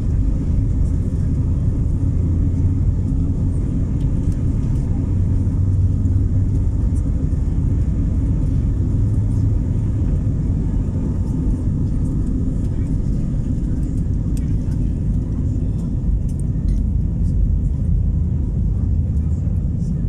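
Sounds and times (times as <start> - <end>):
jet engines at takeoff thrust: 0.0 - 20.0
wheels rumbling over runway: 0.0 - 20.0.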